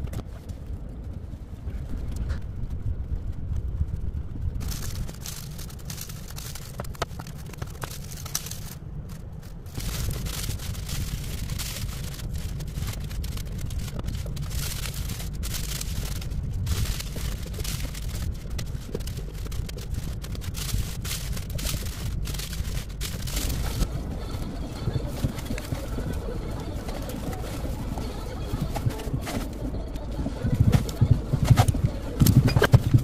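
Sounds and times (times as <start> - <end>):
low rumble: 0.0 - 33.0
tissue paper crinkling: 4.6 - 29.6.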